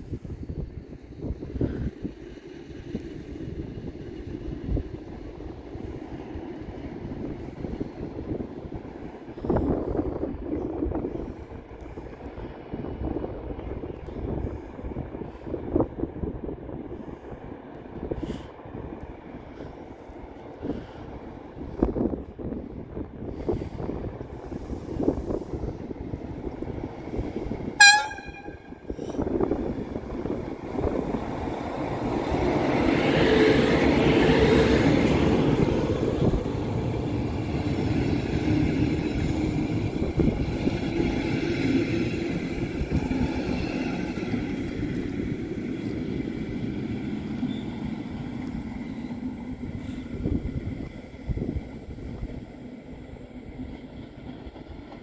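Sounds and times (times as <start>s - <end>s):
train passing: 0.0s - 55.0s
wheels rumbling on rails: 0.0s - 55.0s
locomotive horn toot: 27.8s - 29.0s.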